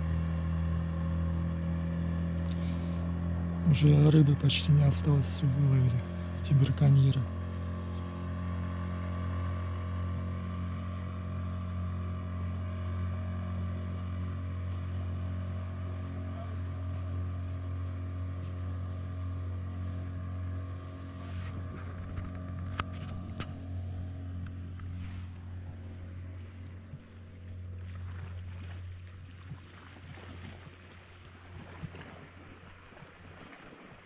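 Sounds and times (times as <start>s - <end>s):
motorboat engine humming: 0.0s - 34.0s.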